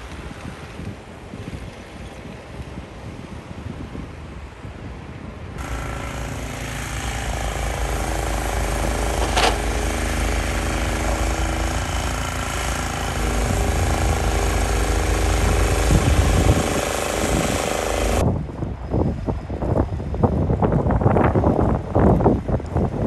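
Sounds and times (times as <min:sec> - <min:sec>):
snow blower engine running: 0:05.6 - 0:18.2.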